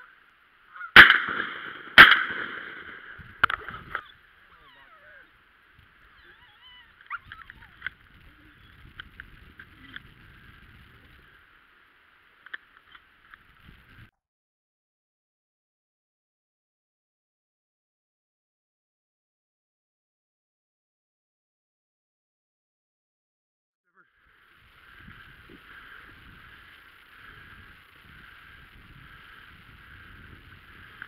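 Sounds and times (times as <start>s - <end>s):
shotgun blasts echoing: 0.9s - 3.7s.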